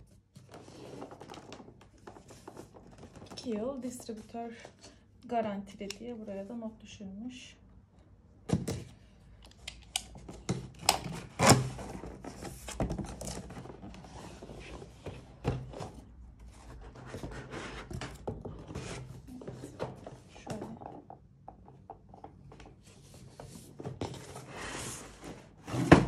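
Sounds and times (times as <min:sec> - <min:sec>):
cardboard scraping on cardboard: 0:16.6 - 0:18.0.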